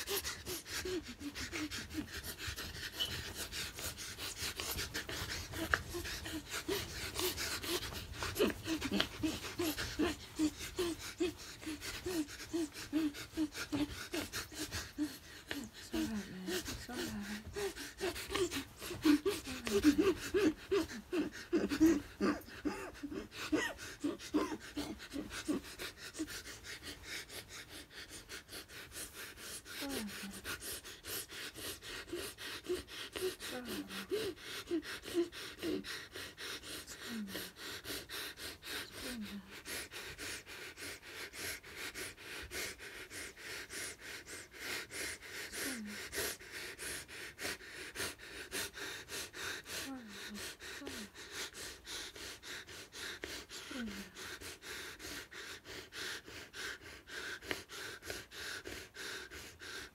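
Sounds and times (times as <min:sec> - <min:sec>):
heavy breathing: 0:00.0 - 0:59.9
woman moaning: 0:05.5 - 0:25.6, 0:32.7 - 0:35.8.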